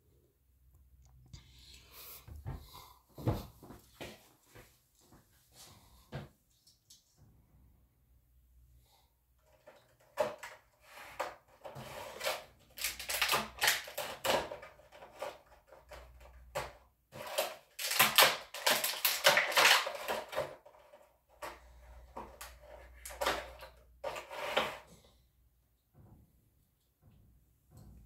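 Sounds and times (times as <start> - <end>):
plastic packaging crackling: 12.6 - 14.5, 17.2 - 20.6.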